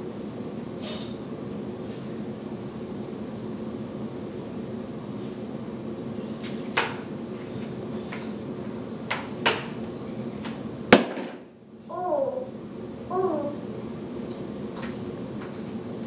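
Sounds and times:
steady low hum: 0.0s - 16.0s
toddler babbling: 11.9s - 13.6s.

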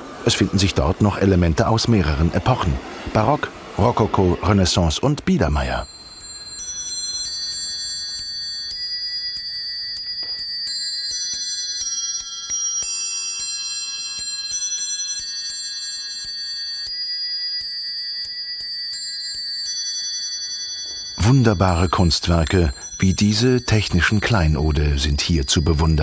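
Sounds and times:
clock bells playing a tune: 5.4s - 26.0s.

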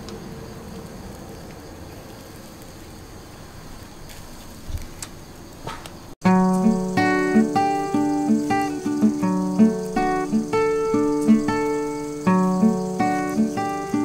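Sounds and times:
acoustic guitar music: 6.2s - 14.0s
fish sizzling on a grill: 6.2s - 14.0s.

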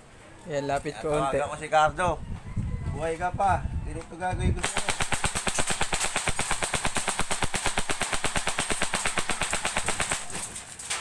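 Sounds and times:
rifle firing full auto: 4.6s - 10.5s.

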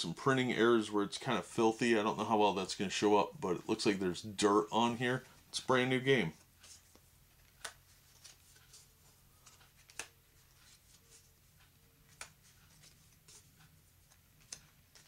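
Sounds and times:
cards flipping with snaps: 6.8s - 11.2s, 12.0s - 13.4s, 14.0s - 15.0s.

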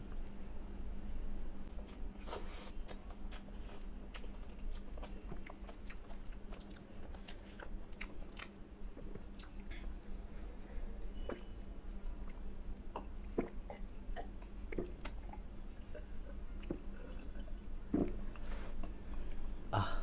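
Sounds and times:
close-up chewing: 1.8s - 10.2s.

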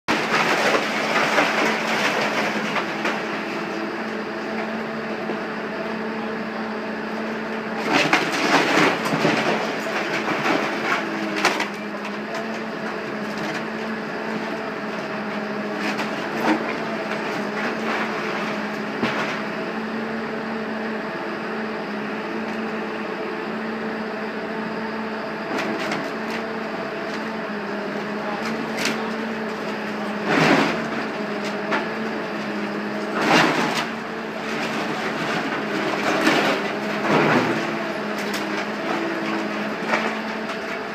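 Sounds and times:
excavator diesel engine drone: 0.0s - 40.9s
debris crashing and clattering: 0.1s - 3.8s, 7.8s - 13.8s, 15.8s - 19.5s, 28.4s - 40.9s.

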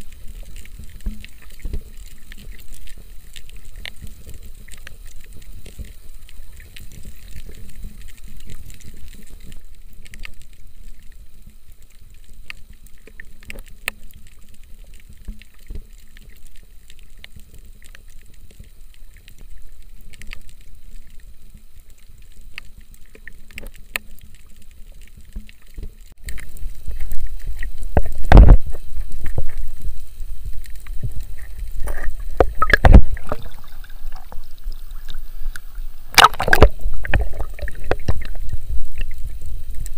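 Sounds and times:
underwater rumble: 0.0s - 39.9s
water sloshing and splashing: 24.9s - 39.9s.

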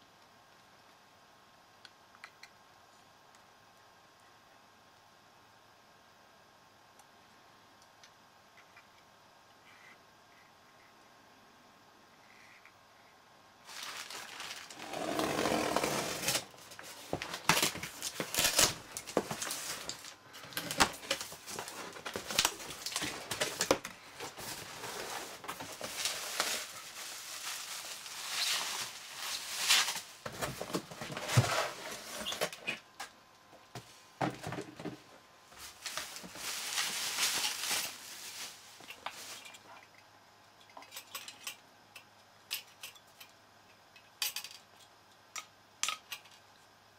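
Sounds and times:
paper and bubble wrap rustling: 13.6s - 32.8s, 35.5s - 39.7s.

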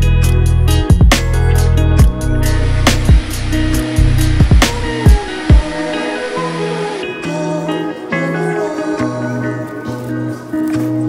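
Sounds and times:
instrumental beat with bass: 0.0s - 7.8s
deep drum hits: 4.0s - 5.7s.

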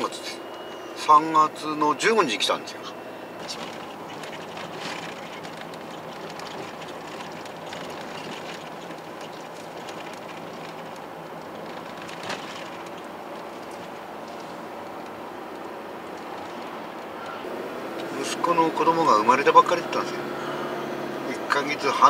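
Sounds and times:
tyre and engine rumble: 0.0s - 22.0s
small rattles: 3.4s - 18.2s.

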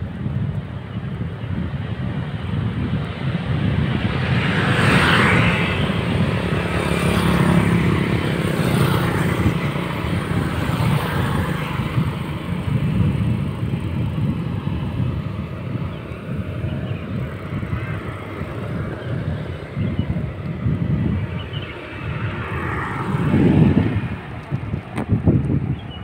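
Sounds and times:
motorcycles passing: 0.0s - 26.0s
road traffic: 0.0s - 26.0s
steady low rumble: 11.6s - 26.0s.

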